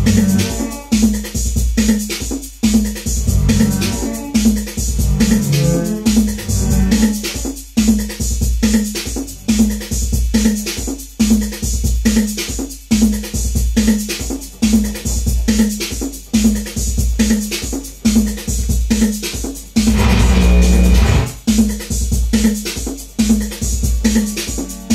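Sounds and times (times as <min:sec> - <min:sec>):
sustained low synth bass: 0:00.0 - 0:00.5, 0:03.2 - 0:04.2, 0:04.8 - 0:07.2, 0:19.9 - 0:21.4
drum machine beat: 0:00.0 - 0:24.9
short repeating synth note: 0:19.9 - 0:21.4.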